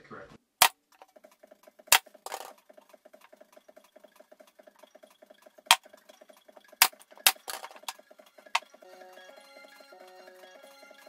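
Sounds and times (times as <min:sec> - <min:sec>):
wooden blocks knocking: 0:01.9 - 0:02.6, 0:06.8 - 0:08.0.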